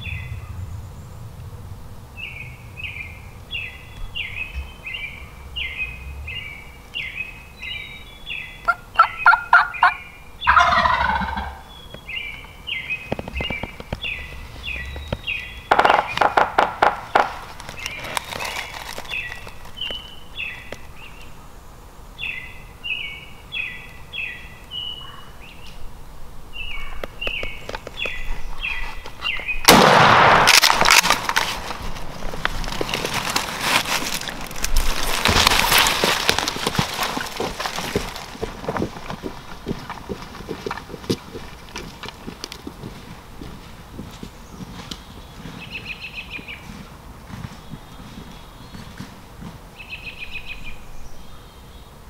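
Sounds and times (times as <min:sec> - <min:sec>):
turkey gobbling: 0:08.7 - 0:11.6
shotgun blast: 0:29.6 - 0:31.2.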